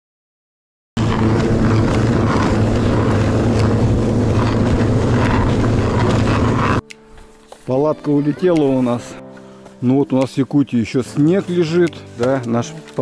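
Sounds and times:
snowmobile engine running: 1.0s - 6.8s.

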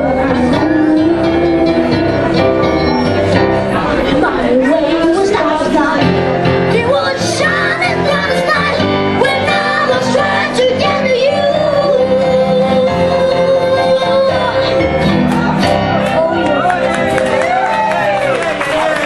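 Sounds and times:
boy singing into a microphone: 0.0s - 2.9s, 3.7s - 15.2s
digital piano playing: 0.0s - 19.0s.

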